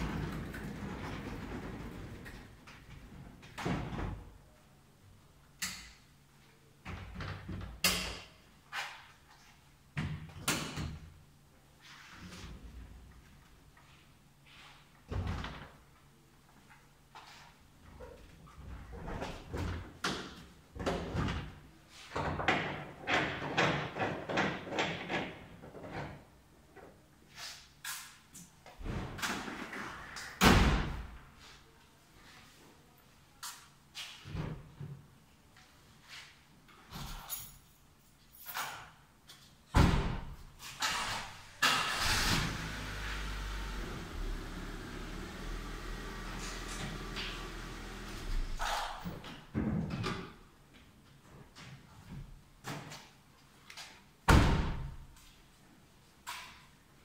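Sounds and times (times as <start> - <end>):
workbench rolling on casters: 0.0 - 2.6.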